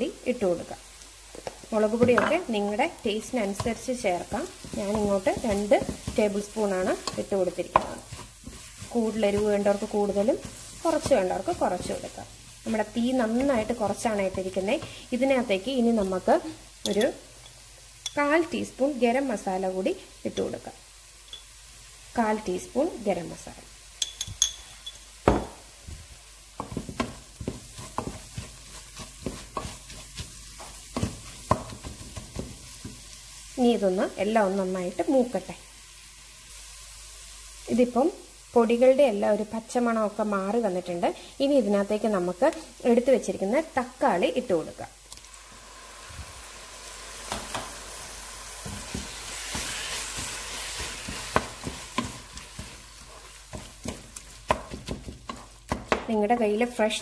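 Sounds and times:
faint frying sizzle: 0:00.0 - 0:57.0
wooden spatula scraping pot: 0:03.3 - 0:15.0, 0:26.6 - 0:33.0, 0:48.6 - 0:56.5.

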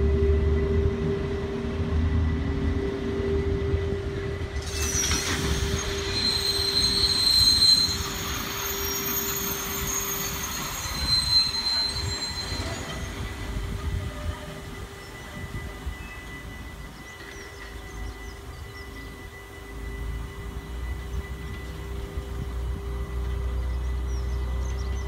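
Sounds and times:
wagons rolling on rails: 0:04.3 - 0:25.0
wheels squealing: 0:04.5 - 0:22.0.

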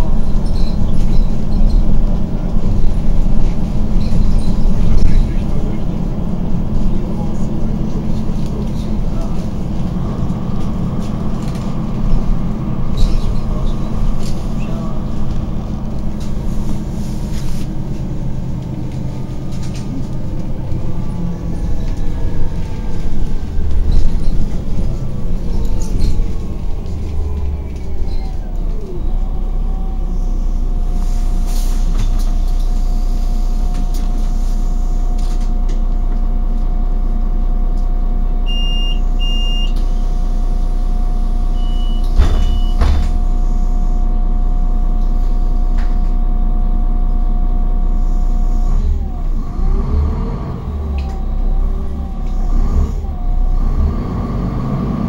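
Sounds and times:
bus engine and drivetrain: 0:00.0 - 0:55.0
short high beeps: 0:38.5 - 0:39.8, 0:41.6 - 0:42.8.

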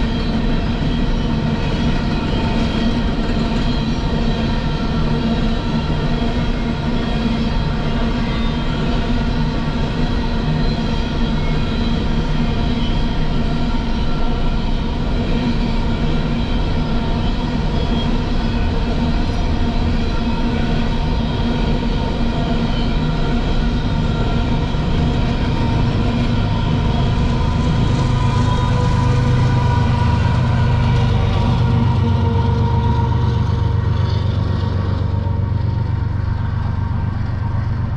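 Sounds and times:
diesel locomotive engine: 0:00.0 - 0:37.9
freight train cars rolling: 0:10.8 - 0:37.9.

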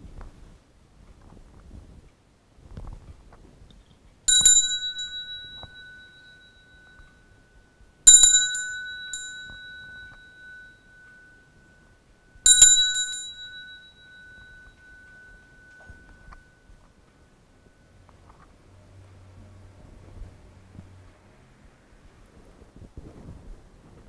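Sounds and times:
small metal bell ringing: 0:04.3 - 0:18.0.

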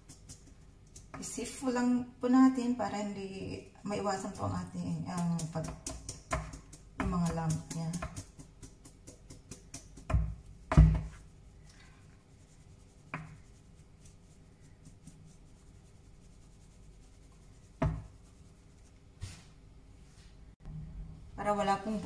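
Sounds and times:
soft rubbing: 0:04.0 - 0:20.5
metal sieve tapped and shaken: 0:04.1 - 0:11.2.

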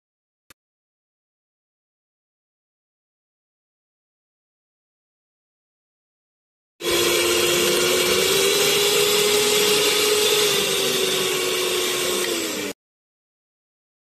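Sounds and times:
stand mixer motor whine: 0:06.8 - 0:12.8.

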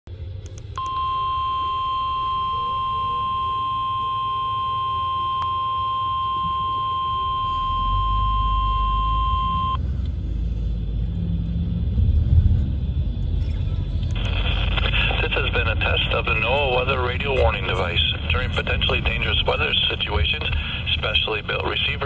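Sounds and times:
low rumble: 0:00.1 - 0:22.0
steady radio alert tone: 0:00.8 - 0:09.8, 0:14.2 - 0:22.0.

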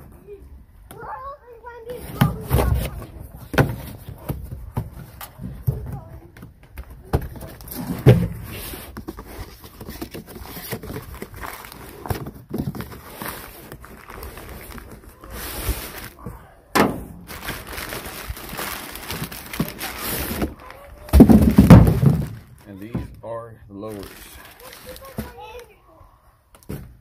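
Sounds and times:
cardboard box being opened: 0:07.4 - 0:16.2
packing paper rustling: 0:08.6 - 0:16.2, 0:17.2 - 0:22.7, 0:23.8 - 0:25.7.

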